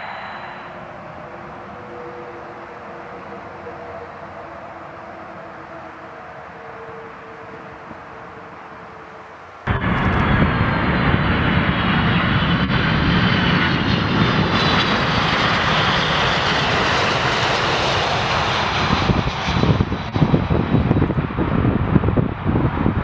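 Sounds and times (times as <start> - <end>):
jet engines roaring: 0.0 - 23.0
aircraft touching down: 9.6 - 23.0.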